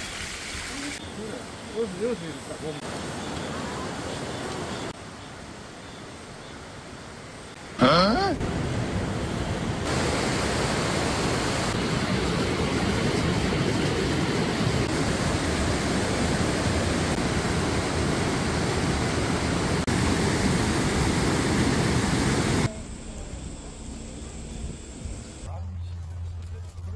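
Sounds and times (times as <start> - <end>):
waterfall rushing: 7.6 - 22.7.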